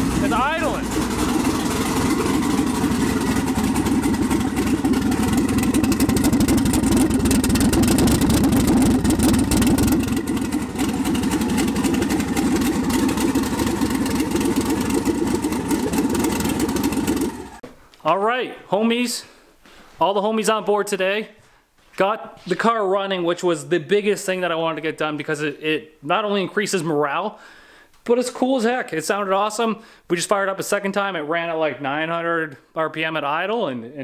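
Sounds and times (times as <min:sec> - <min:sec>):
car engine running with choppy pulsing: 0:00.0 - 0:17.6.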